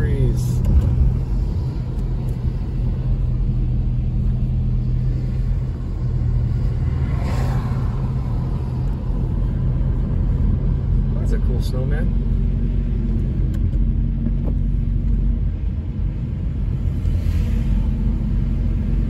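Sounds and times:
car road noise on wet road: 0.0 - 19.0.

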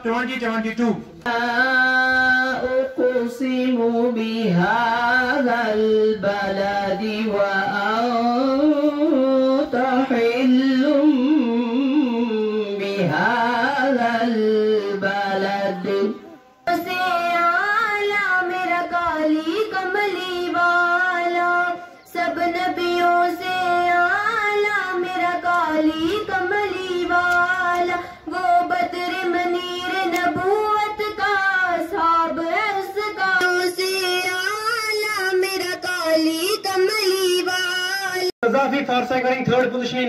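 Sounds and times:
girl singing into microphone: 7.7 - 38.3.

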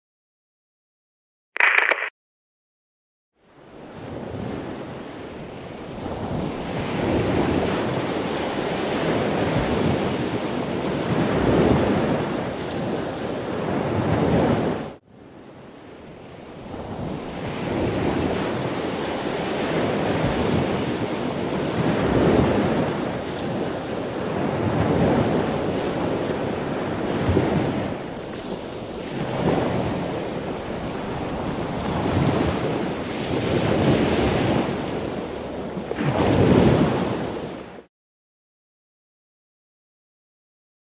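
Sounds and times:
waves breaking: 16.6 - 37.8.

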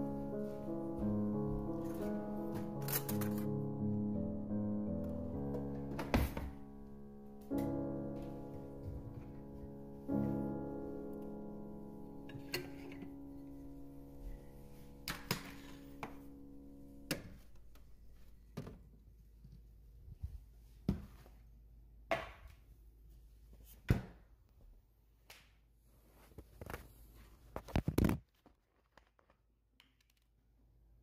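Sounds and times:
piano music: 0.0 - 18.5.

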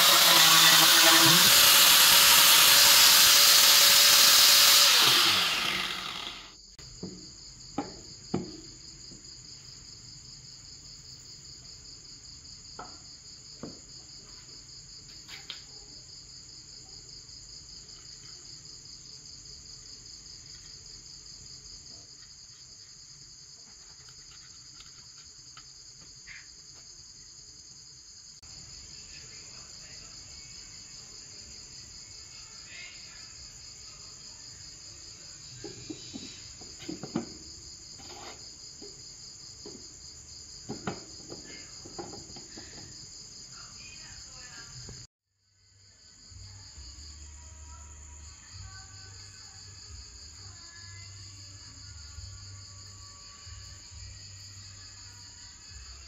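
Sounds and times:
insects chirring: 0.0 - 56.0
wooden lid knocking on jar: 7.8 - 8.6, 40.7 - 42.5.

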